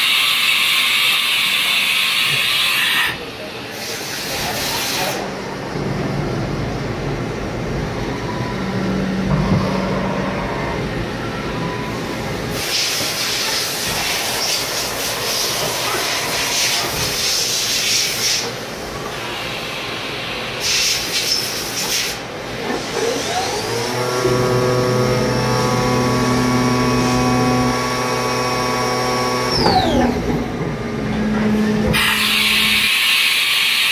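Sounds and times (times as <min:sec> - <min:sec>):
hiss of coolant spray and chips: 0:12.5 - 0:18.5, 0:20.6 - 0:22.2, 0:32.0 - 0:33.9.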